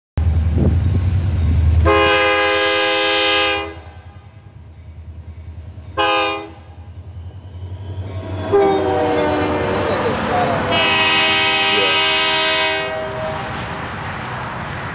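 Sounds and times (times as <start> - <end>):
locomotive engine rumble: 0.2 - 14.9
train rail noise: 0.2 - 14.9
locomotive air horn: 1.8 - 4.4, 6.0 - 6.8, 8.4 - 13.6.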